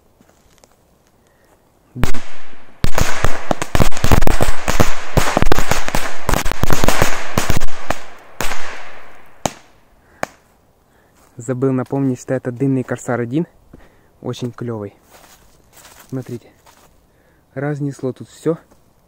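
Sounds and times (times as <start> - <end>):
firecrackers banging: 2.0 - 10.4.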